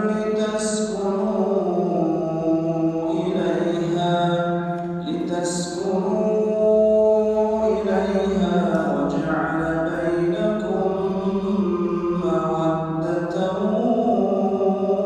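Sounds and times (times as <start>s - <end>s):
man chanting recitation: 0.0s - 15.0s.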